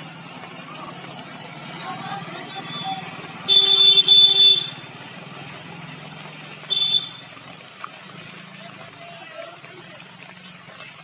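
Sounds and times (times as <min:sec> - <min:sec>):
vehicle horn honking: 0:02.5 - 0:04.8, 0:06.7 - 0:07.3.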